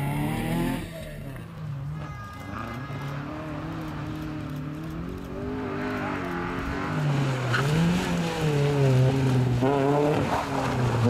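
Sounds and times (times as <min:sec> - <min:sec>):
car engine revving hard: 0:00.0 - 0:01.1, 0:03.3 - 0:11.0.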